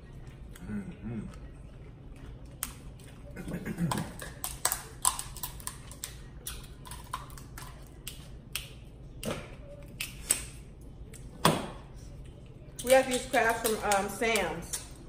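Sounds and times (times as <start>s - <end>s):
crab shells cracking: 3.9s - 8.8s.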